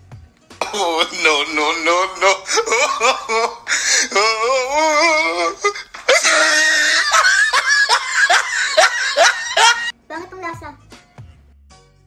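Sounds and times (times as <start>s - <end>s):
background music: 0.0s - 12.0s
woman's wavering cry of distaste: 0.6s - 9.9s.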